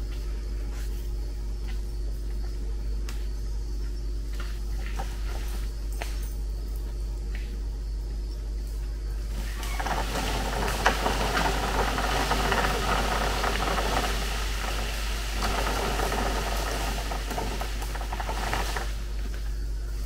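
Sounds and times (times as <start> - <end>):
steady low hum: 0.0 - 20.0
branches dragged across road: 9.3 - 20.0.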